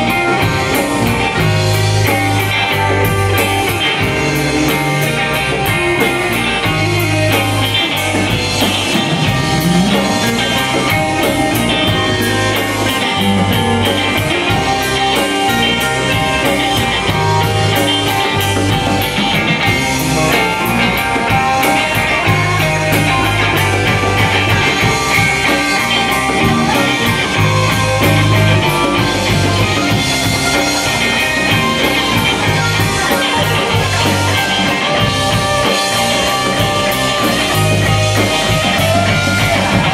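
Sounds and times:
drum kit beat: 0:00.0 - 0:39.9
electric bass guitar: 0:00.0 - 0:39.9
electric guitars: 0:00.0 - 0:39.9.

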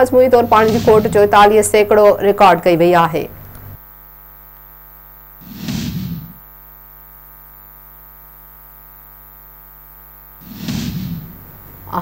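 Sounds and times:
buzzy electrical hum: 0:00.0 - 0:12.0
short whoosh effect: 0:05.4 - 0:06.4, 0:10.4 - 0:11.4.

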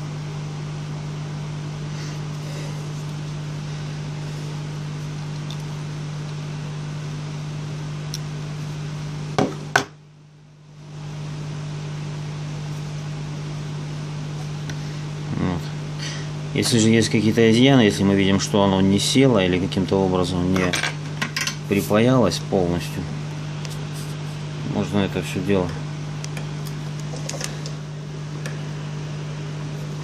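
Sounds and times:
electric heater fan humming: 0:00.0 - 0:30.0.

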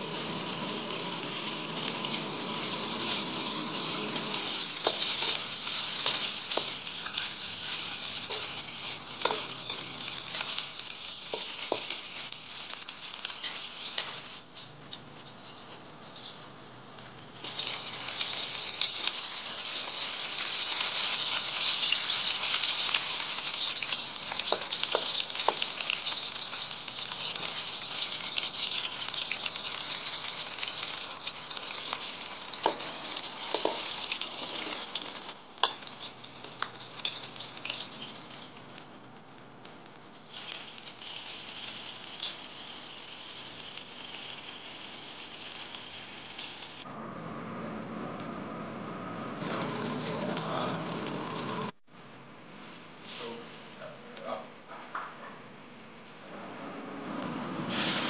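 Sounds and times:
sharp crackles: 0:00.0 - 0:14.7, 0:17.0 - 0:46.9
fat sizzling in a wok: 0:00.0 - 0:46.9, 0:48.7 - 0:51.8, 0:52.6 - 0:54.4, 0:56.3 - 0:58.0.

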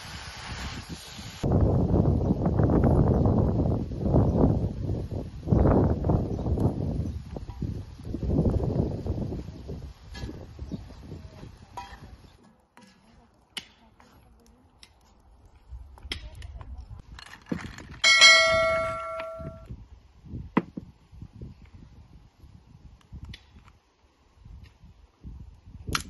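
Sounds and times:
bowl ringing: 0:18.0 - 0:19.7.

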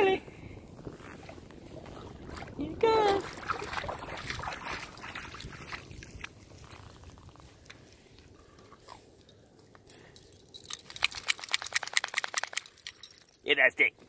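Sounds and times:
dog splashing in water: 0:01.8 - 0:06.3.

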